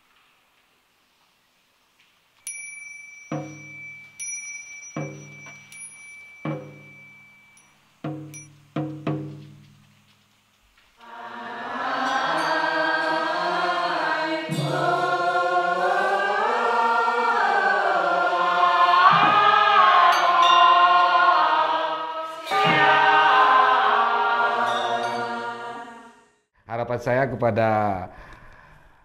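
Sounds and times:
sharp percussion strikes: 2.8s - 10.1s, 14.4s - 15.3s, 19.0s - 25.3s
group chanting in unison: 11.0s - 26.4s.

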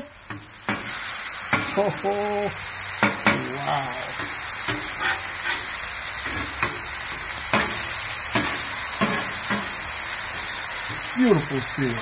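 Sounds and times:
meat and onions sizzling on griddle: 0.0s - 12.0s
metal spatula scraping griddle: 3.0s - 11.1s.

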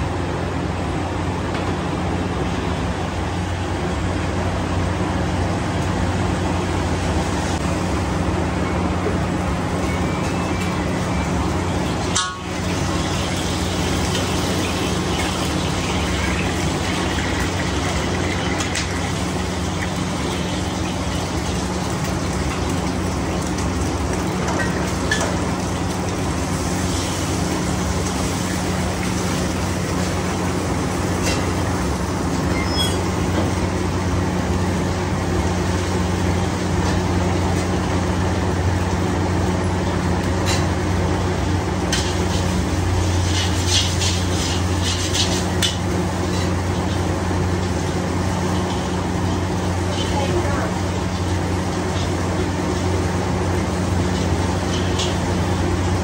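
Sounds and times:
stirring arms clicking in woks: 12.1s - 30.3s, 41.7s - 50.1s, 51.0s - 56.0s.

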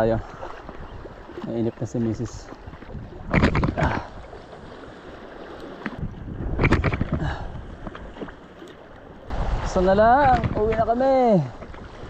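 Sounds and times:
wind noise: 2.7s - 4.4s, 5.9s - 8.3s, 9.3s - 12.0s.

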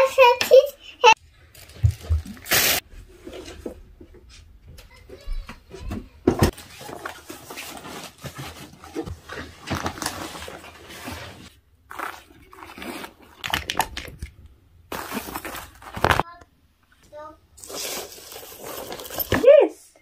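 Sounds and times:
rustling: 6.4s - 16.3s, 17.0s - 19.5s
fabric suitcase being handled: 14.9s - 16.2s
items dropped into a tote bag: 14.9s - 16.2s.

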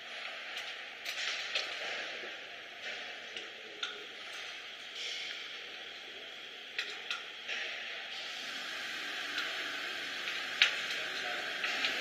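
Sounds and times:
steady hiss: 7.8s - 12.0s.

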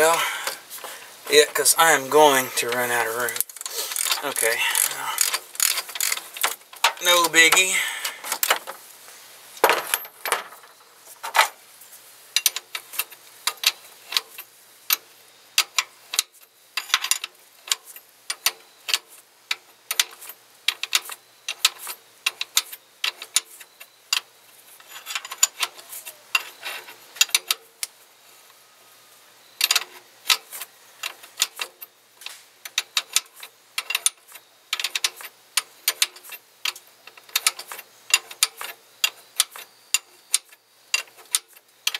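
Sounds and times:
ratchet wrench clicking: 3.4s - 6.6s.

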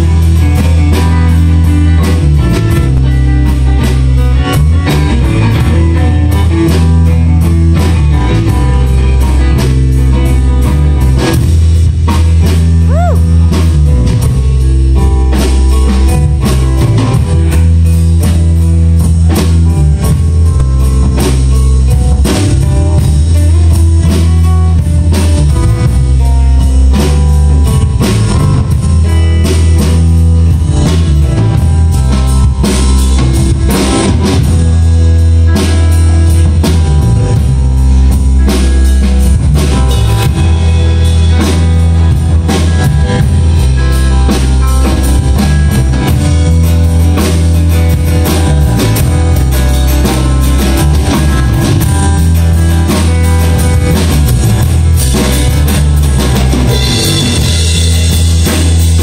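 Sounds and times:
drum kit steady beat: 0.0s - 59.0s
electric bass: 0.0s - 59.0s
electric guitar: 0.0s - 59.0s.

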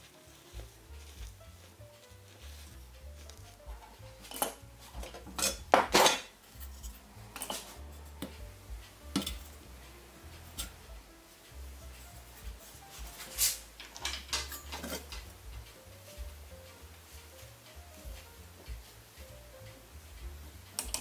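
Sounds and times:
metal lamp clanking: 3.7s - 8.4s, 9.1s - 9.7s, 13.5s - 15.8s.

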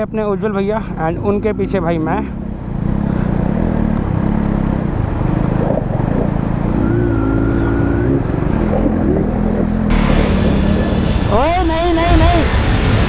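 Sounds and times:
motorcycle engines running: 0.0s - 13.0s.

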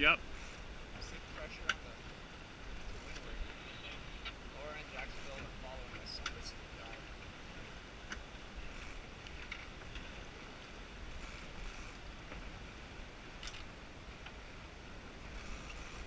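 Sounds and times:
water rushing along a hull: 0.0s - 16.0s
wind rumble on microphone: 0.0s - 16.0s.

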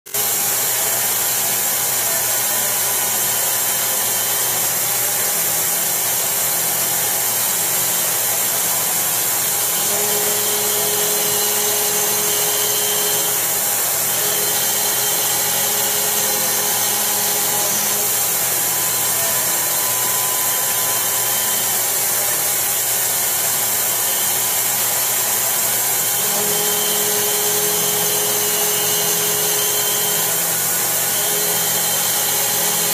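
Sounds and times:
milling machine cutting metal: 0.1s - 32.9s
whining tone: 8.0s - 23.1s, 23.8s - 32.9s.

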